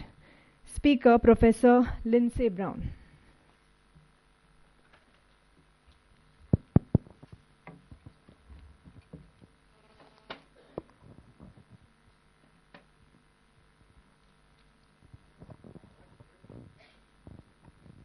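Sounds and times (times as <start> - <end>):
microphone handling thumps: 6.4 - 9.6, 10.7 - 11.9, 15.0 - 18.0.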